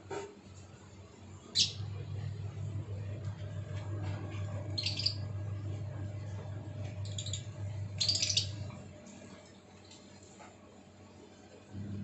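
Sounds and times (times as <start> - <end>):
lovebirds chirping: 1.5 - 2.0, 4.6 - 5.4, 6.8 - 8.8
low hum: 11.7 - 12.0.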